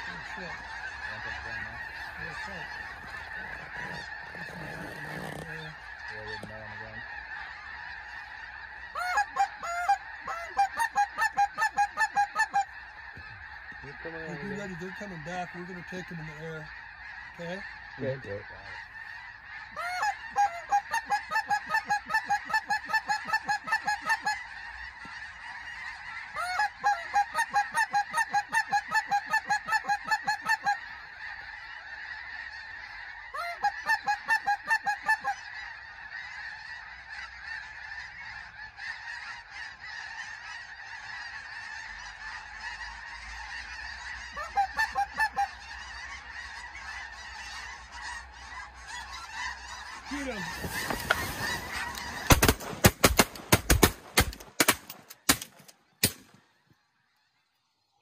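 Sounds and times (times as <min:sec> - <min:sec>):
geese honking: 0:00.0 - 0:58.0
shotgun blasts: 0:52.3 - 0:56.4.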